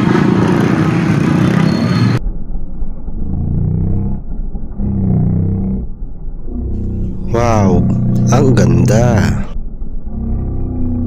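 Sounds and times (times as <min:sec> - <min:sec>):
motorcycle street traffic: 0:00.0 - 0:02.2, 0:06.5 - 0:11.0
muffled low rumble with hum: 0:02.2 - 0:11.0.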